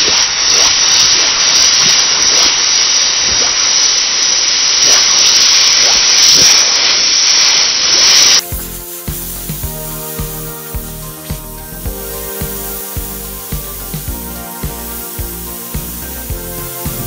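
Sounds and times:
small crackles: 0.0 - 9.1
hot steel hissing in water: 0.0 - 17.0.

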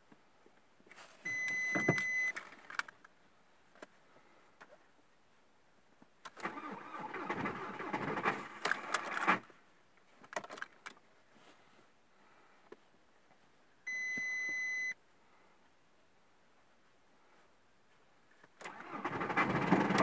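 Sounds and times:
electronic beep: 1.3 - 2.4.

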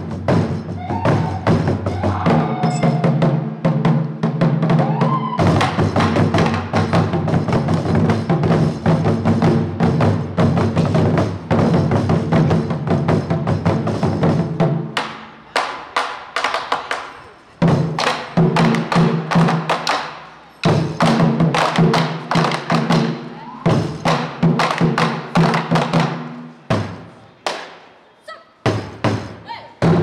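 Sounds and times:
taiko drums: 0.0 - 27.7, 28.6 - 30.0.

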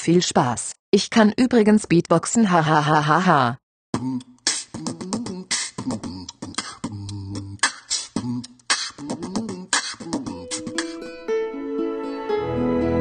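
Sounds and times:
person beatboxing: 3.9 - 11.2
instrumental music: 10.1 - 13.0.

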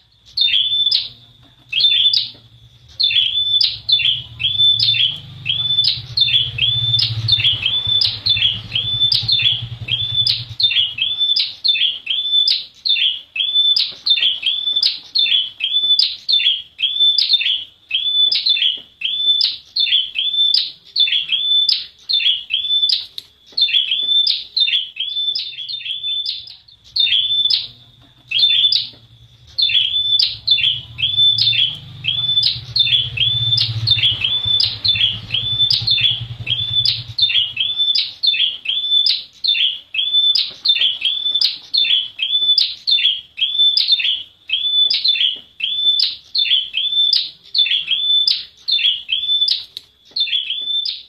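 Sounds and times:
bird calling in sharp high chips: 0.0 - 51.0
low rumble: 2.2 - 11.0, 26.8 - 37.8.

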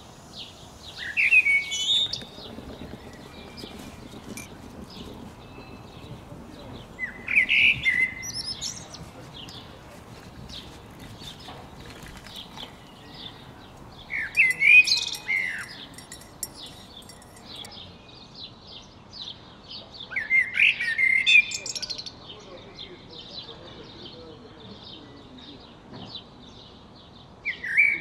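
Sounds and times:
faint steady hiss: 0.0 - 17.7
birds chirping and calling: 0.0 - 17.9.

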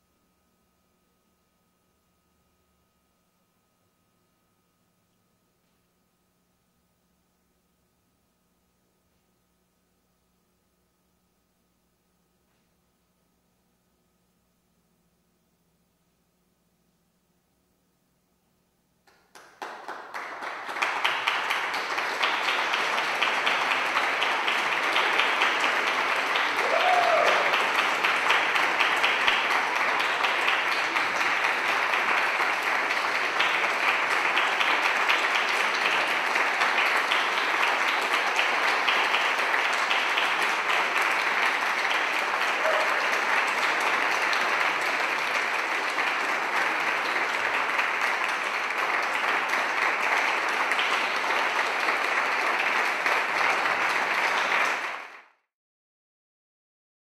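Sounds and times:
audience applauding: 19.1 - 55.4.

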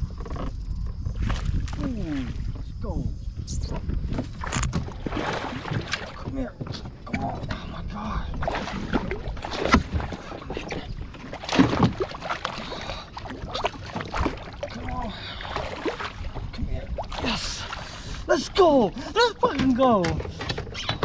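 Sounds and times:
knocks and bumps on kayak: 8.3 - 12.7, 19.4 - 21.0.

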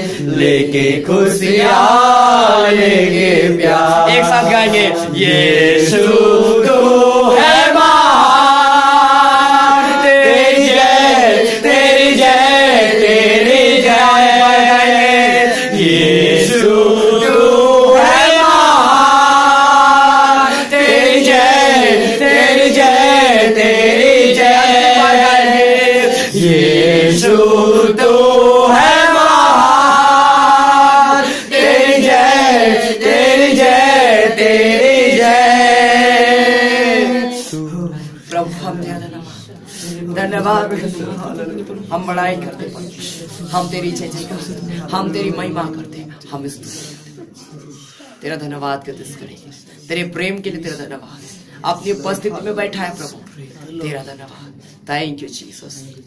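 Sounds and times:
group singing worship song: 0.0 - 46.0.

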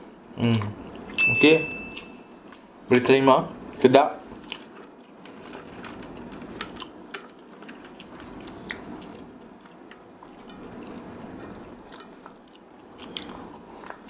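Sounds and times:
person chewing food: 0.5 - 1.2, 4.3 - 14.0.

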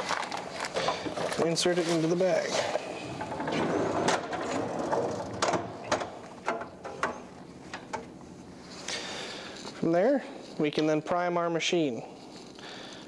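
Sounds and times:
metal drawer sliding shut: 2.6 - 7.2.

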